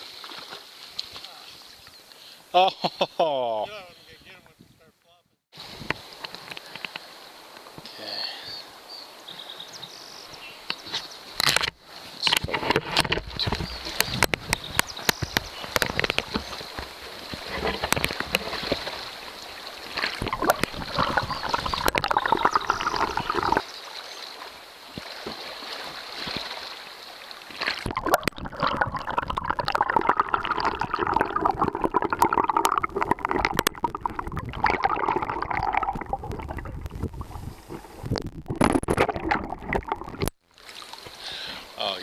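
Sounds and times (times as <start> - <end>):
water sloshing and gurgling: 10.7 - 41.2
muffled underwater rushing: 12.5 - 24.3, 27.4 - 40.3.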